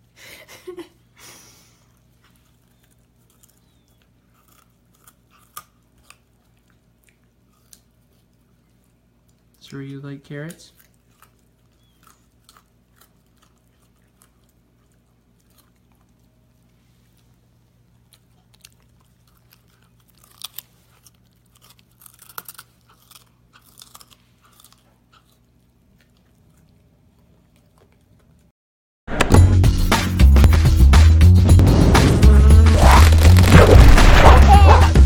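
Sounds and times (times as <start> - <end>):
puppy chewing carrot crunches: 1.9 - 28.5, 32.3 - 35.0
music: 29.1 - 35.0.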